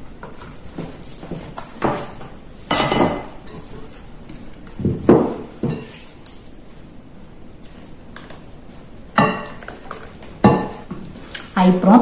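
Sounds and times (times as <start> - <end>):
cookware clunks and scrapes: 1.8 - 4.0, 4.8 - 6.1.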